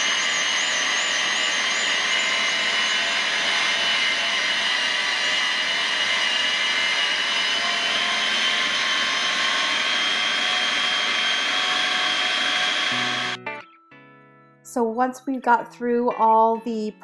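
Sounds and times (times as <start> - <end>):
dessert maker motor whining: 0.0 - 13.4.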